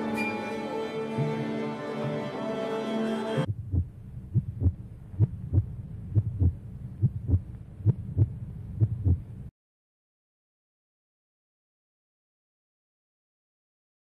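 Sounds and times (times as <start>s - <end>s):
string music: 0.0s - 4.3s
heartbeat thumps: 3.5s - 9.5s.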